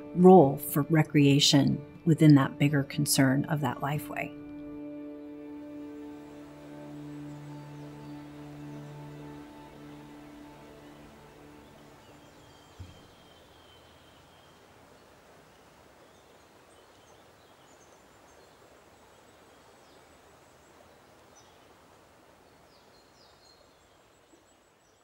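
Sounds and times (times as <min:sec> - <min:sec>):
faint outdoor ambience: 0:00.0 - 0:25.0
high bird chirps: 0:11.6 - 0:14.6
low thump: 0:12.8 - 0:13.1.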